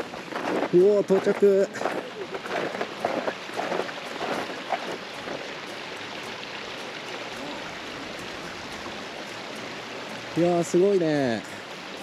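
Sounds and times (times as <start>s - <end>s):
footsteps in snow: 0.0s - 5.4s
water rushing: 0.0s - 12.0s.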